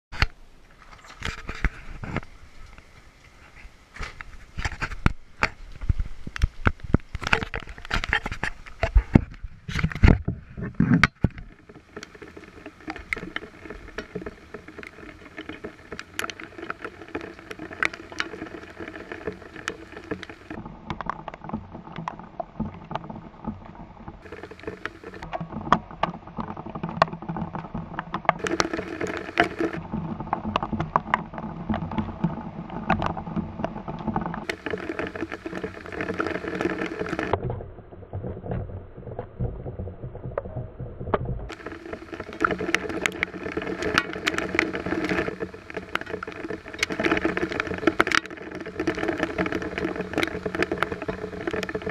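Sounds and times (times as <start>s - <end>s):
rain drops tapping: 4.0s - 51.9s.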